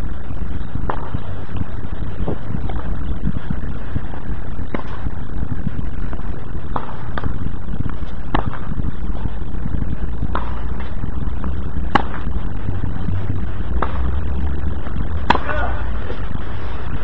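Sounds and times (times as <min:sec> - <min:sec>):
steady rushing background noise: 0:00.0 - 0:17.0
tennis balls struck by rackets: 0:00.8 - 0:01.2, 0:04.7 - 0:05.1, 0:06.7 - 0:07.4, 0:08.0 - 0:09.2, 0:10.2 - 0:10.9, 0:11.8 - 0:12.4, 0:13.7 - 0:14.3, 0:15.2 - 0:16.3.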